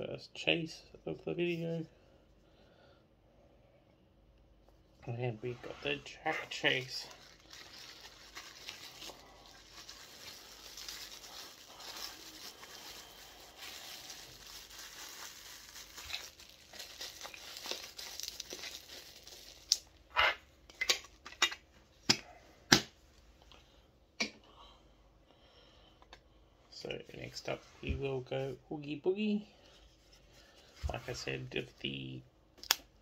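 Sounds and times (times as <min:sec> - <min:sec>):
plastic wrap crinkling and tearing: 0:05.8 - 0:20.1.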